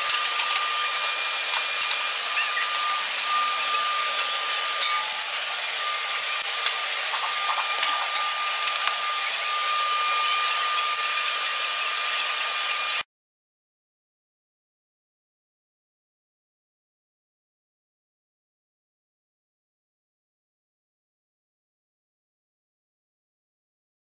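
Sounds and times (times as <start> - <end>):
high machine whine: 0.0 - 13.0
whirring machine: 0.0 - 13.0.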